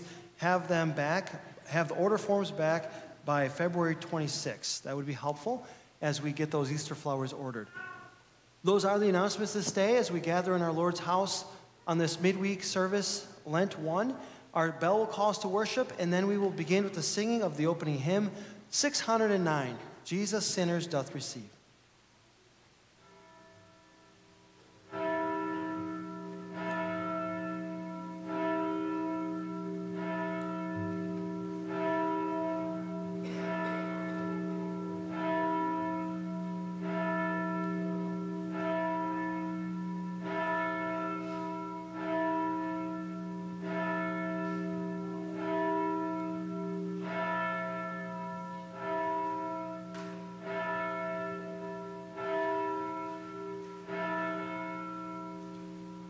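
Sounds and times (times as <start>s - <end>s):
church bell tolling: 23.0s - 56.0s.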